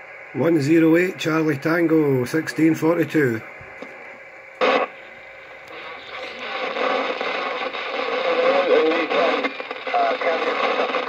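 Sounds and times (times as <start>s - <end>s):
radio static hiss: 0.0s - 11.0s
radio noise burst: 0.1s - 11.0s
garbled wavering radio signals: 0.4s - 11.0s.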